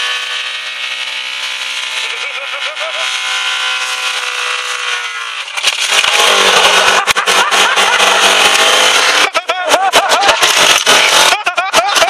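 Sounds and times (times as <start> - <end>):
car engine screaming at high revs: 0.0 - 12.0
engine knocks and bangs: 5.5 - 11.4.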